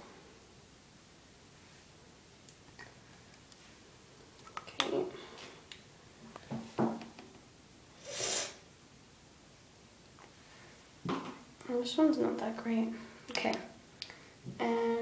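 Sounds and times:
short breathy hiss: 8.0 - 8.7.

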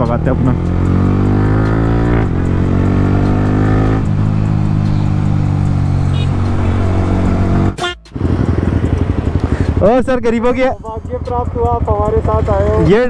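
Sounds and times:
motorcycle engine accelerating: 0.0 - 9.9.

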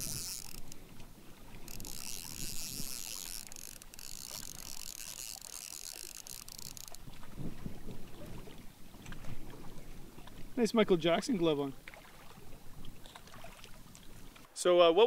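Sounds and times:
fishing reel ratcheting: 0.0 - 1.0, 1.6 - 7.1.

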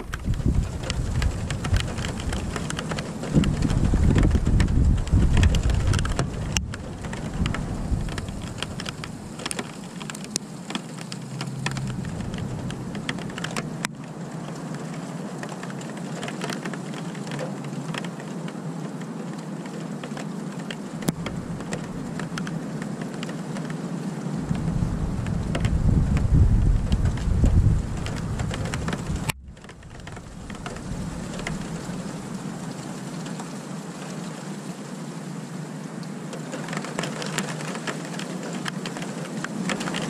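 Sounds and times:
low thunder rumble: 0.0 - 10.0, 11.1 - 13.9, 21.1 - 22.8, 24.3 - 33.4
sharp drip clicks: 0.0 - 14.1
steady rain falling: 0.0 - 40.0.

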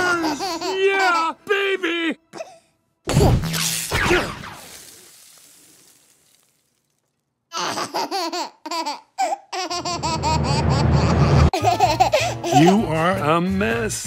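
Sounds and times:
baby giggling: 0.0 - 1.3, 7.5 - 12.8.

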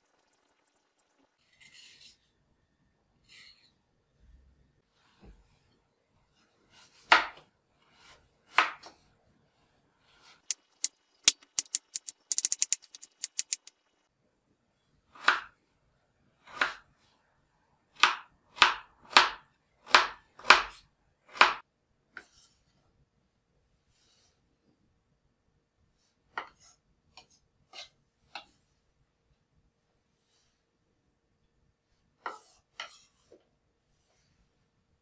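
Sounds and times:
knife cutting potato on wooden board: 6.7 - 9.0, 10.1 - 13.7, 15.1 - 15.6, 16.4 - 17.0, 18.0 - 22.5, 32.2 - 33.4
sharp clicks: 10.5 - 13.7.

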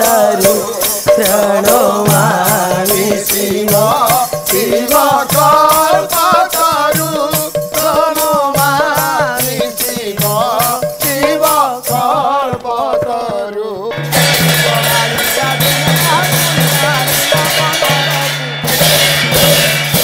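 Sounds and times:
percussion strikes: 0.0 - 20.0.

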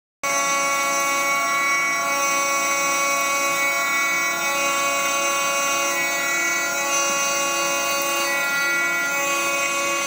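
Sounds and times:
milling spindle high-pitched whine: 0.2 - 10.0.

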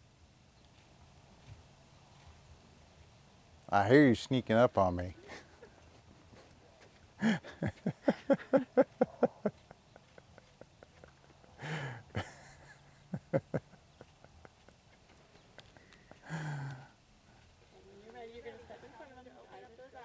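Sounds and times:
person laughing: 5.2 - 5.8, 7.2 - 16.9
breathy sigh: 11.6 - 12.2, 15.8 - 17.0.

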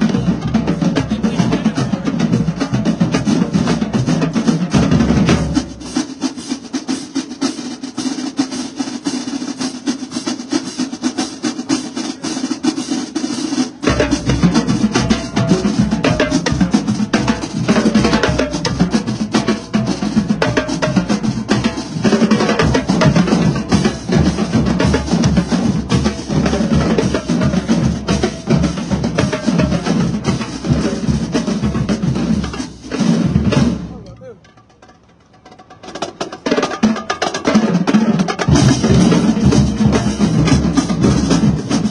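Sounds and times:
bass drums: 0.0 - 6.2, 13.8 - 34.8, 37.5 - 41.9
snare drums: 0.0 - 41.9
tenor drums: 0.0 - 41.9.

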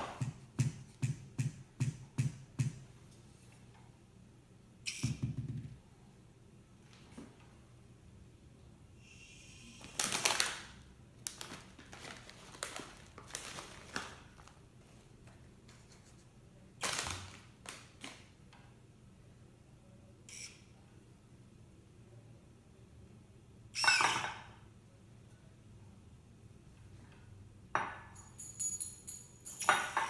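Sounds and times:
chip bag crinkling: 9.9 - 14.6.

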